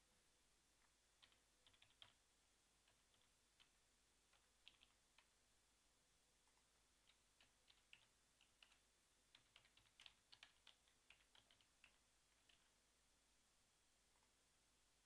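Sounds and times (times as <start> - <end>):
typing on keyboard: 0.8 - 2.2, 2.8 - 5.3, 6.5 - 12.8.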